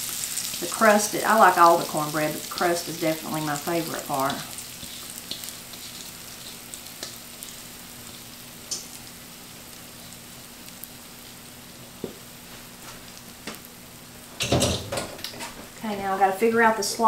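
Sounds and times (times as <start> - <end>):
batter sizzling in skillet: 0.0 - 14.6
spatula scraping bowl: 4.7 - 6.7.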